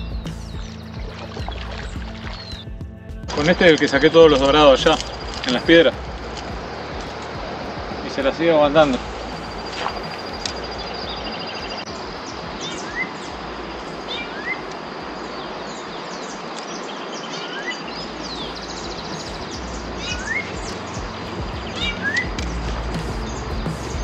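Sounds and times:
steady outdoor hiss: 0.0 - 24.0
fast high bird trill: 8.8 - 13.4, 17.2 - 24.0.

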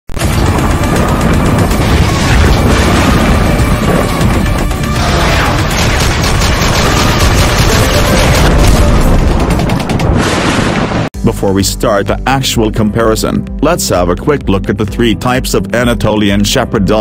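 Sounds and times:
action-style intro music: 0.1 - 10.4
gunfire: 0.2 - 10.8
booms: 0.2 - 11.1.

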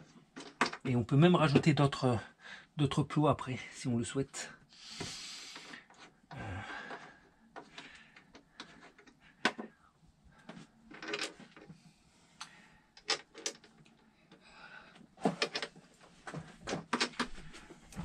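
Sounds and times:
battery cables clicking and knocking: 15.2 - 18.0.

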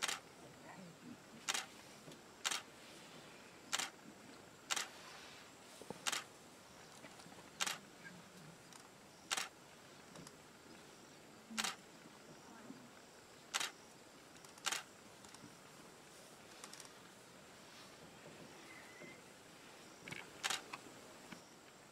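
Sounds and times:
camera shutter clicks: 0.0 - 0.2, 1.5 - 1.7, 2.4 - 2.6, 3.7 - 3.9, 6.0 - 6.3, 7.6 - 7.8, 9.3 - 9.5, 13.5 - 13.8, 14.6 - 14.9, 20.4 - 20.8
background hiss: 0.0 - 21.9.

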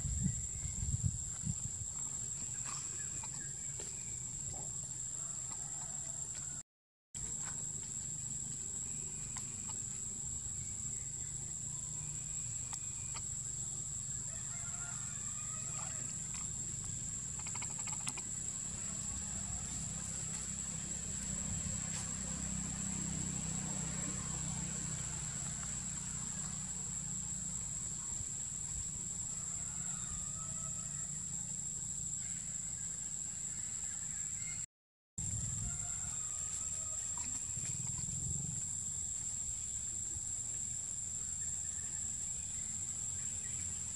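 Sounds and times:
high insect drone: 0.0 - 6.6, 7.2 - 34.6, 35.2 - 43.9
faint chirps and squeaks: 15.7 - 18.3.

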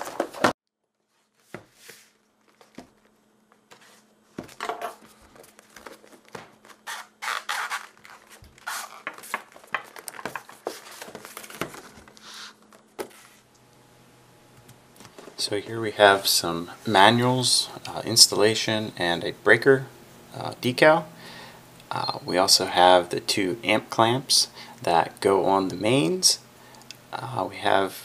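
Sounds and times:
plastic wrap crinkling and tearing: 5.4 - 12.7
knife slitting plastic wrap: 6.6 - 9.4.

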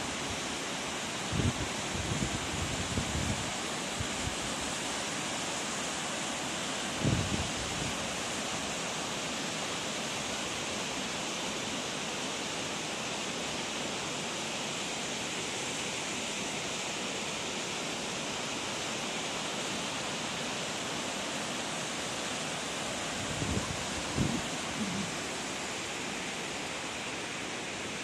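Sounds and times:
waterfall rushing: 13.8 - 28.0.

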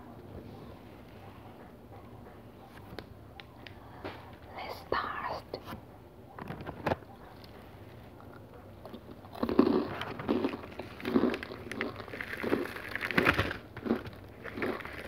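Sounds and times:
crunchy chewing: 6.6 - 15.0.

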